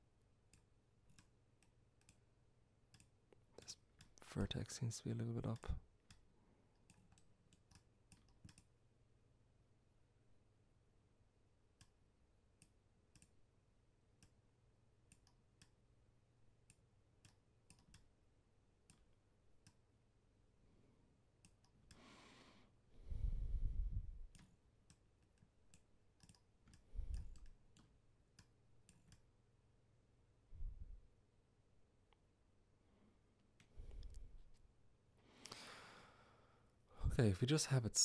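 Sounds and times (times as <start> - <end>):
computer mouse clicks: 0.5 - 2.2, 2.9 - 4.2, 5.5 - 8.8, 12.6 - 13.4, 15.1 - 15.8, 16.6 - 18.2, 18.8 - 19.8, 21.4 - 22.0, 24.3 - 29.3
low rumble on microphone: 23.1 - 24.3, 30.5 - 31.0.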